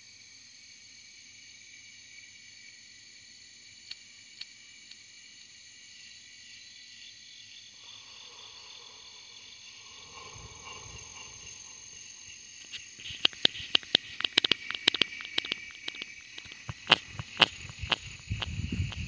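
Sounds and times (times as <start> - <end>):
insect trills: 0.0 - 19.0
sharp clicks and knocks: 12.6 - 19.0.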